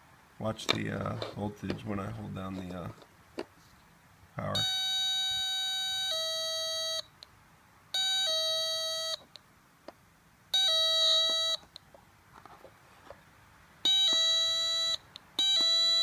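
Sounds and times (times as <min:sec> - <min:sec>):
two-tone doorbell ding-dong: 0:04.6 - 0:07.1, 0:08.0 - 0:09.3, 0:10.6 - 0:11.6, 0:13.9 - 0:16.0.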